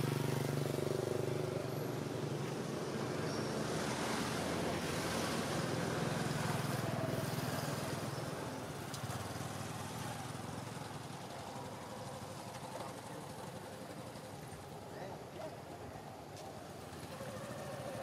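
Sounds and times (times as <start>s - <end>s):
passing vehicle engine hum: 0.0s - 18.0s.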